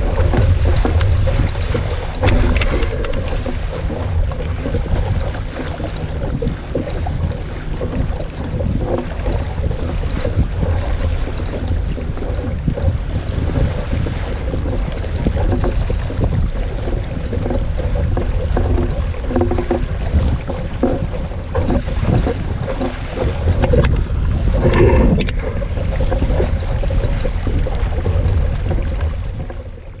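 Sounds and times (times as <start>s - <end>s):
water rushing around boat: 0.0s - 30.0s
wind buffeting microphone: 0.0s - 30.0s
clatter of knocks: 0.1s - 5.4s, 14.5s - 24.0s.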